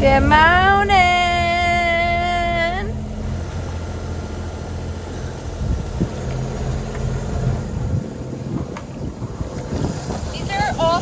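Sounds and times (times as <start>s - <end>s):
water rushing along a hull: 0.0s - 11.0s
wind on the microphone: 5.5s - 11.0s.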